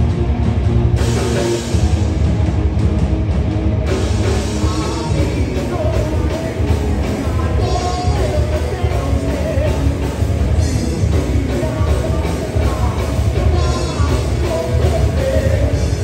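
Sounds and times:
live rock band playing: 0.0 - 16.0.

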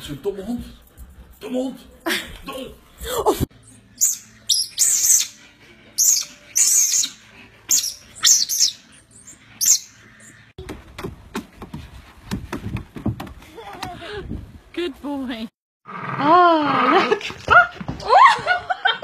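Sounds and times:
small animals chirping: 3.6 - 5.4, 6.0 - 10.4.

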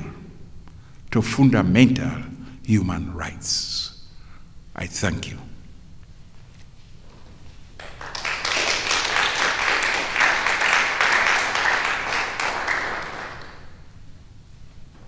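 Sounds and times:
audience applauding: 7.8 - 13.9.

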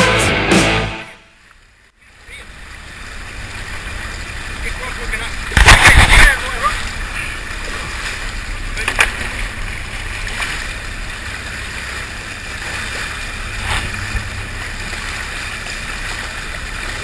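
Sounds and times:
low rumble: 1.2 - 17.0
water wash: 1.2 - 17.0
wind noise: 5.4 - 8.0.

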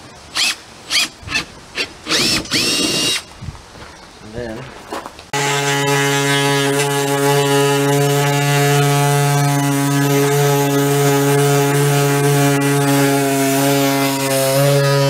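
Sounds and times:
electric cutting tool humming: 5.4 - 15.0.

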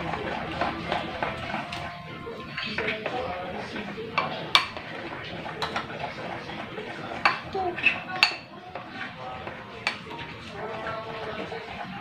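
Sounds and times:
spoon stirring thick batter: 0.0 - 12.0.

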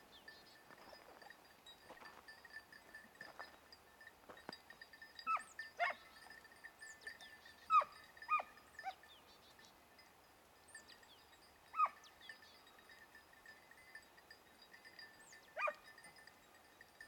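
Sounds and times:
hounds yelping: 5.2 - 6.2, 7.6 - 9.0, 11.7 - 12.1, 15.6 - 15.9.

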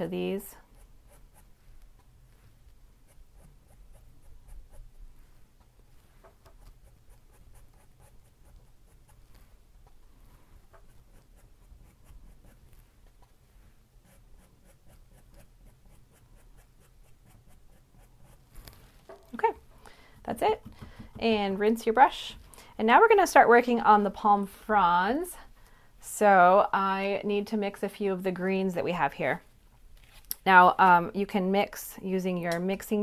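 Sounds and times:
low steady hum: 0.0 - 33.0
paintbrush brushing on canvas: 0.6 - 19.1.

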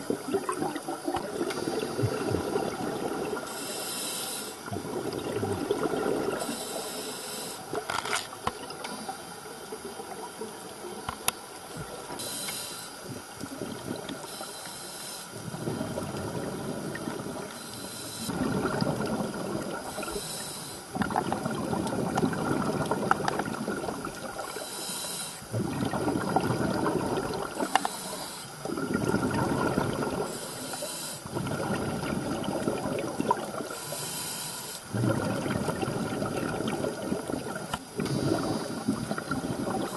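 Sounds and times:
exhaled bubbles rushing: 0.0 - 3.5, 4.6 - 6.5, 13.2 - 14.3, 15.4 - 17.5, 18.3 - 20.2, 20.9 - 24.6, 25.5 - 27.7, 28.6 - 30.3, 31.3 - 33.8, 34.9 - 39.9
scuba regulator inhale hiss: 1.4 - 4.7, 6.3 - 7.8, 12.1 - 13.1, 14.2 - 15.5, 16.7 - 18.4, 19.8 - 21.0, 24.4 - 25.5, 27.5 - 28.7, 30.1 - 31.4, 33.7 - 35.0, 37.9 - 39.9.

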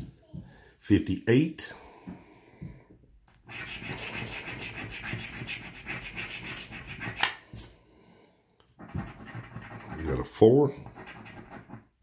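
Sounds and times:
scratching lottery ticket: 3.4 - 7.2, 8.8 - 11.9.

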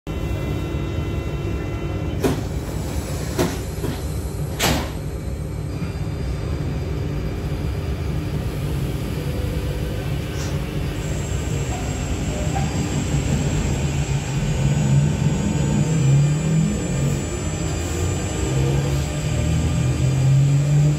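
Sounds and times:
high steady whine: 0.1 - 20.9
train low rumble: 0.1 - 20.9
rising low traction tones: 12.8 - 20.9.

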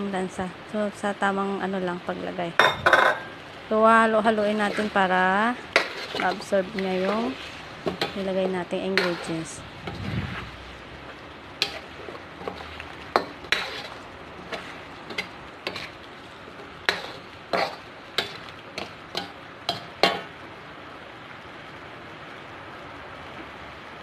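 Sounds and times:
faint steady hiss: 0.0 - 24.0
metal ladle scraping a wok: 4.4 - 10.8, 11.6 - 20.3.

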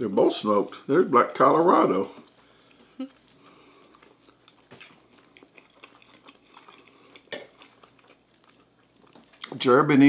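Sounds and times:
chewing: 2.1 - 9.7.

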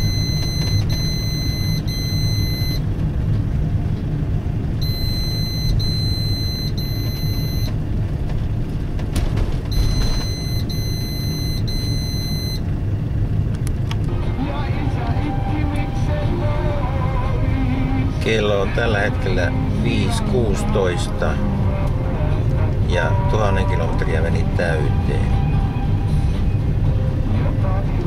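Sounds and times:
electronic warning beeps: 0.0 - 2.8, 4.8 - 7.8, 9.7 - 12.6
car engine and road rumble: 0.0 - 28.0.

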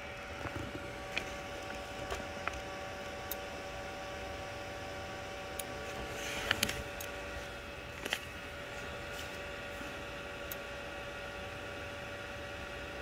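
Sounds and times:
cooling fans hissing: 0.0 - 13.0.

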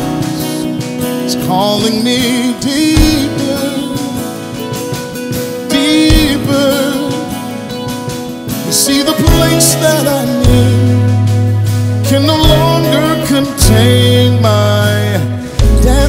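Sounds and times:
instrumental backing: 0.0 - 16.0
person singing with vibrato: 0.0 - 16.0.

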